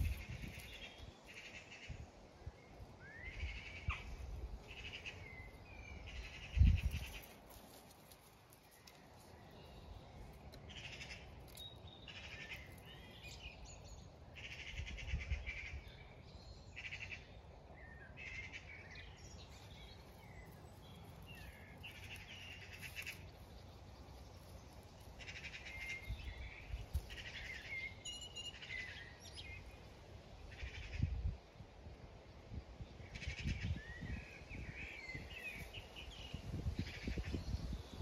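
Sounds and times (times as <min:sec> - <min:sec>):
songbirds trilling: 0:00.0 - 0:31.3.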